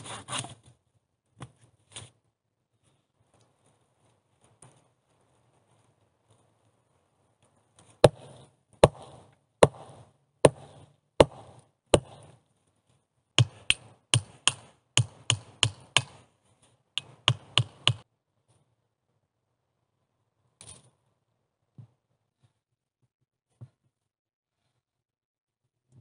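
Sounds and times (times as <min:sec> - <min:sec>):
hatchet chopping wood: 0:08.0 - 0:12.4, 0:13.4 - 0:16.3, 0:17.0 - 0:18.1.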